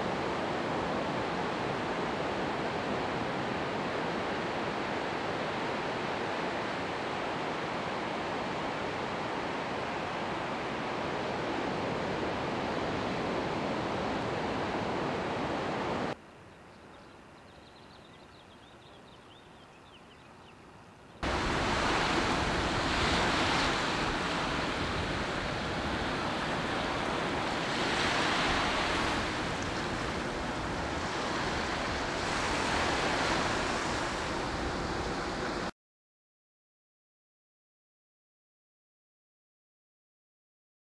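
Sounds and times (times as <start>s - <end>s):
ocean surf on sandy beach: 0.0s - 16.2s, 21.2s - 35.7s.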